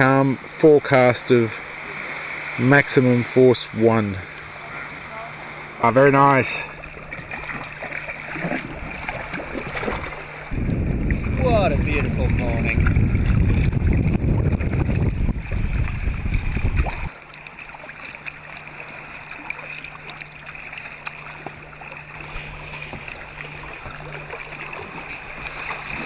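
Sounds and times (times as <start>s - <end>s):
faint steady hum: 0.0s - 26.0s
kayak paddle splashes: 0.0s - 26.0s
sea water lapping: 0.0s - 26.0s
wind rumbling on microphone: 6.8s - 17.1s.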